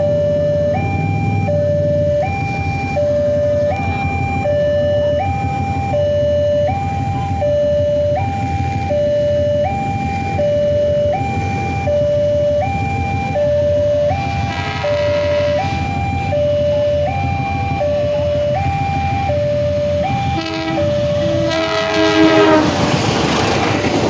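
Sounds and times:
low rumble: 0.0 - 4.7
two-tone crossing alarm: 0.0 - 24.0.

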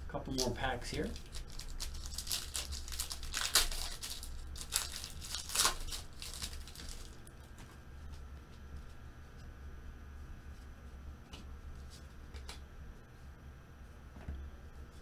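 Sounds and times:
foil wrapper crinkling and tearing: 0.3 - 7.4.

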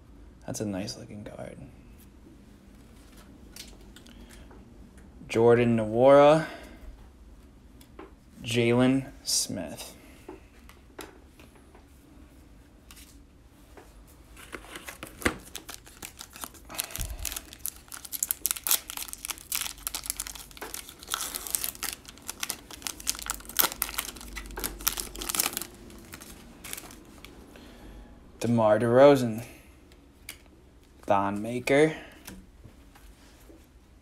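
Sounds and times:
foil wrapper crinkling and tearing: 14.9 - 27.3.

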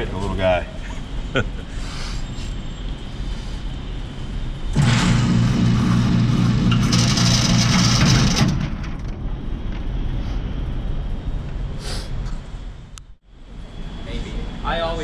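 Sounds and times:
electric motor humming: 4.8 - 8.5.

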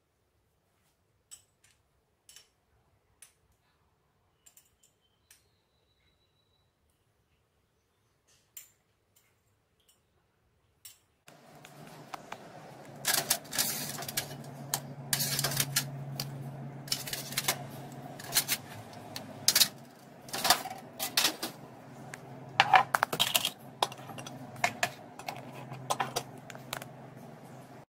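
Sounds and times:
kitchen items clattering: 11.3 - 27.8
low machine hum: 11.3 - 27.9.

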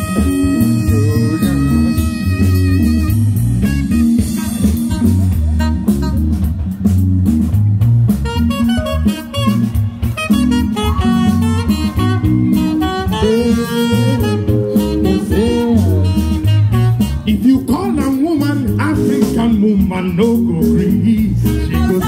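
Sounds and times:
saxophone melody: 0.0 - 7.0, 7.9 - 22.0
bass: 0.0 - 22.0
drum-kit beat: 0.0 - 22.0.

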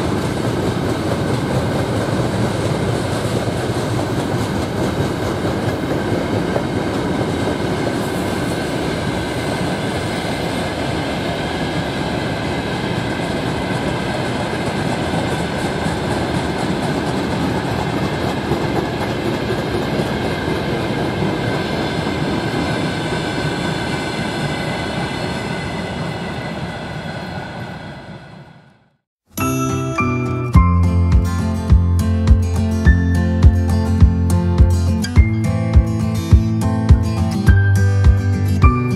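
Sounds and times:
clickety-clack over rail joints: 0.0 - 24.0
freight train wheels rumbling: 0.0 - 28.7.

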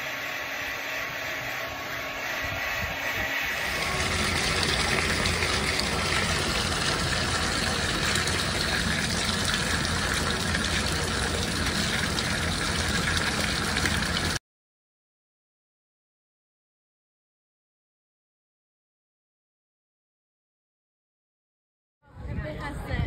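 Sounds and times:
water running from tap into tub: 3.6 - 14.4.

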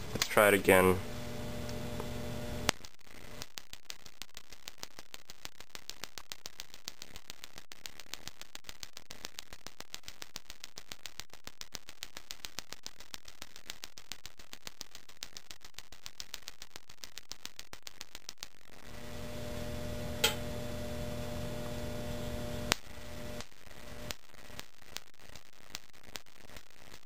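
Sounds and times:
igniter sparking snaps: 0.0 - 27.0.

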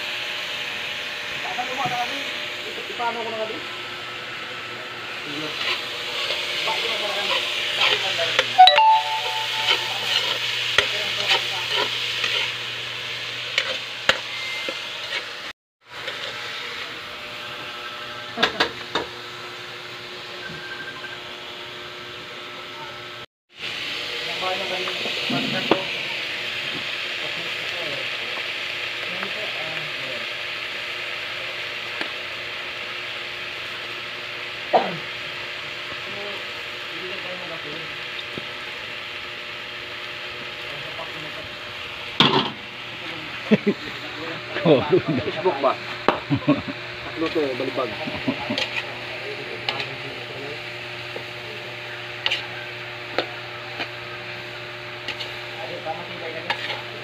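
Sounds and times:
food sizzling in a wok: 0.0 - 57.0
metal spatula scraping a pan: 56.4 - 57.0.

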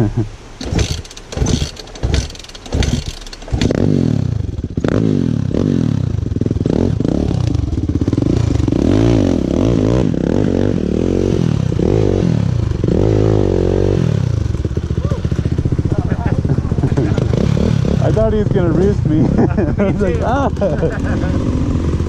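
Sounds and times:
dirt bike engine revving: 0.0 - 22.0
sharp clattering knocks: 0.6 - 5.0.

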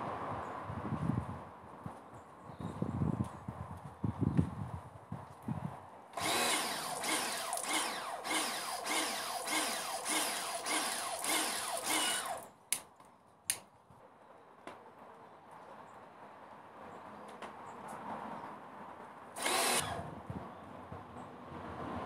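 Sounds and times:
pressure washer pulsing: 6.2 - 12.5, 19.4 - 20.1
sharp clicks: 6.2 - 13.7.

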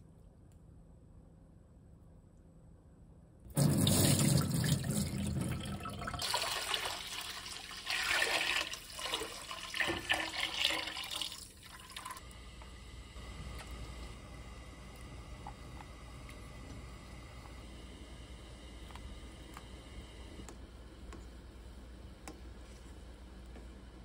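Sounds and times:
liquid pouring into metal pot: 3.6 - 12.2.

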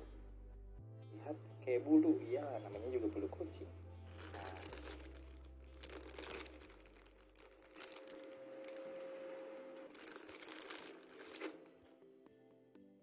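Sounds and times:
plastic bag crinkling: 4.0 - 12.0.

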